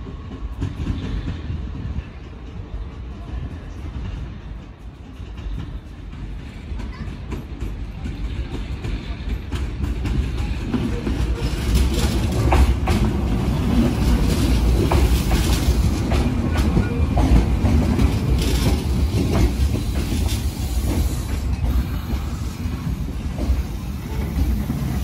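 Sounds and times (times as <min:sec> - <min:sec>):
electric train rumbling past: 0:00.0 - 0:25.0
wheels clicking over rail joints: 0:05.1 - 0:25.0.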